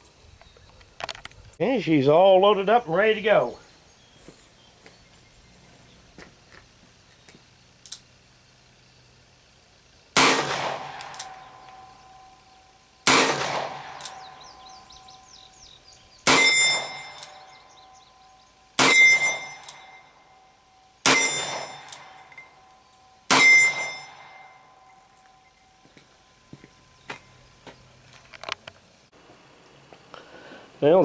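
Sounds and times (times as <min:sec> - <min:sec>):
revolver shots: 0:10.2 - 0:11.8, 0:13.1 - 0:14.4
metallic ringing: 0:16.3 - 0:26.0.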